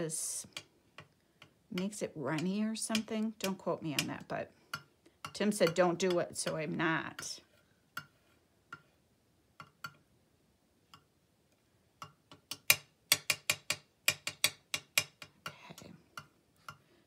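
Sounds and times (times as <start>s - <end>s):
metal palette knife tapping on mat: 0.5s - 7.3s, 12.0s - 15.6s.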